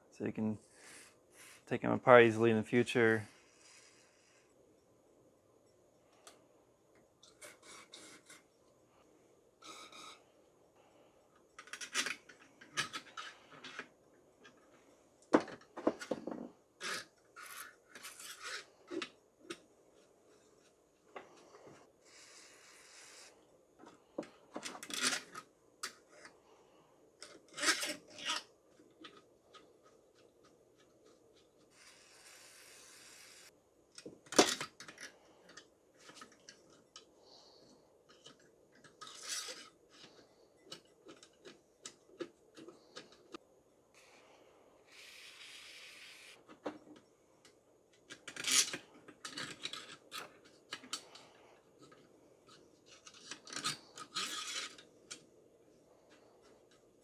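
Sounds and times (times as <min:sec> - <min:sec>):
steel screws clinking and scraping: 0:52.9 - 0:54.9.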